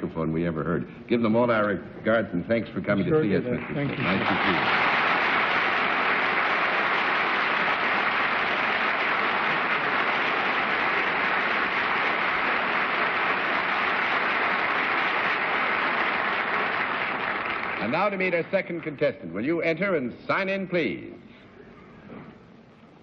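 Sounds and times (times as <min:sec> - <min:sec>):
audience applauding: 0:03.4 - 0:19.0.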